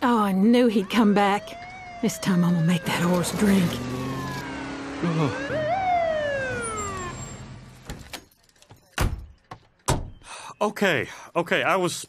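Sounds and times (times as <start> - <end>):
police siren whoop: 0.7 - 7.5
engine hum: 0.8 - 8.2.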